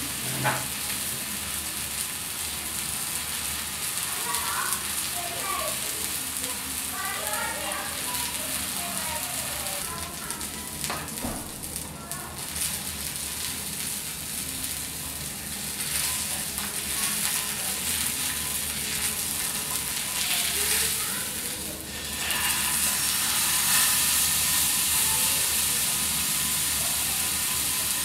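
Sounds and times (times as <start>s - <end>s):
meat sizzling in hot oil: 0.0s - 28.0s.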